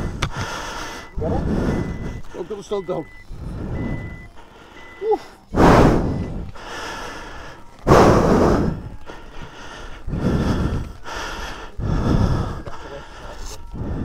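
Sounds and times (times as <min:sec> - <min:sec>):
heavy breathing: 0:00.0 - 0:14.0.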